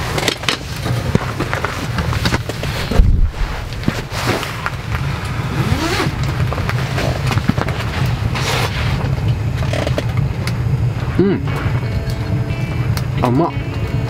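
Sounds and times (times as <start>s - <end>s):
low rumble: 1.6s - 8.4s.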